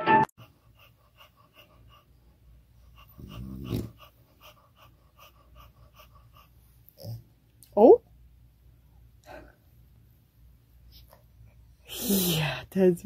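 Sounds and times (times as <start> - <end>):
dog panting: 0.4 - 7.2
dog pitched breath: 0.4 - 7.2.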